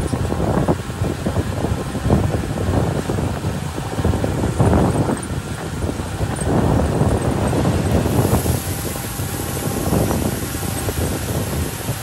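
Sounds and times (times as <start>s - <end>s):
diesel truck engine running: 0.0s - 12.0s
gravel sliding with rushing hiss: 0.1s - 12.0s.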